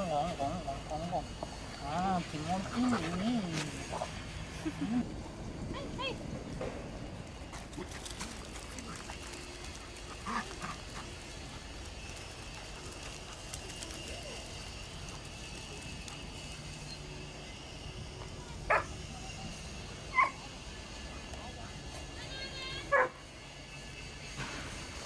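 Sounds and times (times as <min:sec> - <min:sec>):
outdoor background noise: 0:00.0 - 0:25.0
dogs barking: 0:18.7 - 0:19.0, 0:20.1 - 0:20.4, 0:22.9 - 0:23.2.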